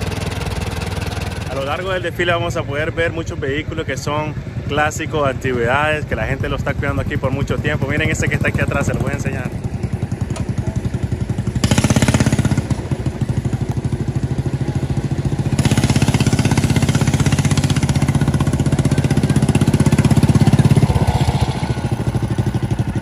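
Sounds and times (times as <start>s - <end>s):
small engine chugging: 2.9s - 23.0s.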